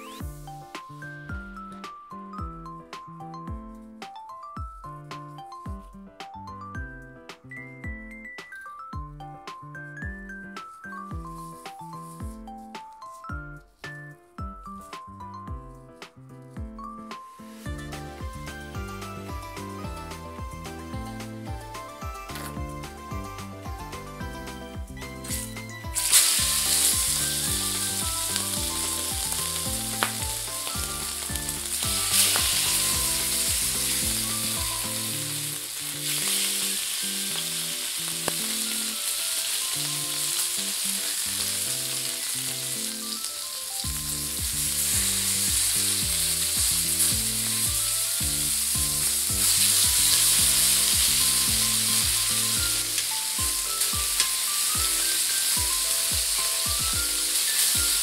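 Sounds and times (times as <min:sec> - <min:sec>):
background music: 0:00.0 - 0:58.0
steaks sizzling in a skillet: 0:25.1 - 0:58.0.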